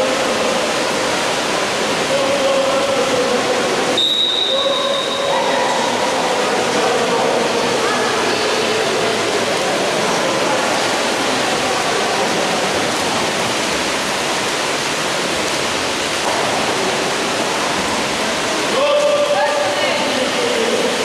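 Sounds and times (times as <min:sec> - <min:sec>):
faint voices: 0:00.0 - 0:13.7
water churned by swimmers: 0:00.0 - 0:21.0.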